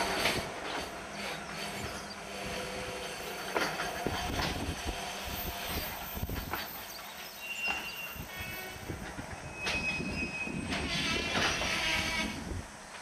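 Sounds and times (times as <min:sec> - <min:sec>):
train wagons rolling: 0:00.0 - 0:13.0
wheels knocking and clanking: 0:00.1 - 0:08.0
high-pitched brake squeal: 0:04.7 - 0:12.5.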